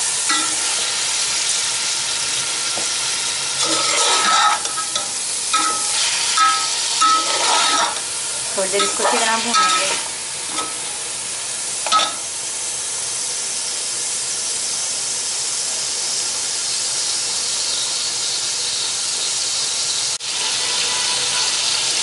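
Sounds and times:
meat sizzling in hot oil: 0.0 - 22.0
metal spoon clinking pot: 3.6 - 8.0, 8.8 - 10.8, 11.9 - 12.2.

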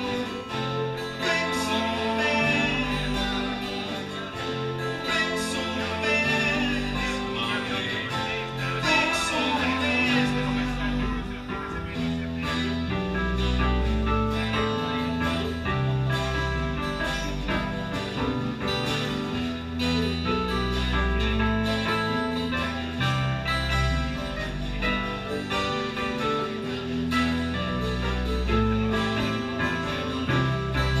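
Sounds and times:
deep bass notes: 0.0 - 31.0
keyboards: 0.0 - 31.0
strummed guitars: 0.0 - 31.0.

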